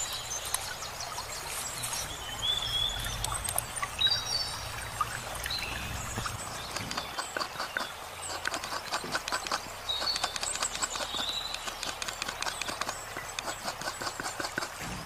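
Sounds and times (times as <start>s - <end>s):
coconut scraper rasping: 6.7s - 15.0s.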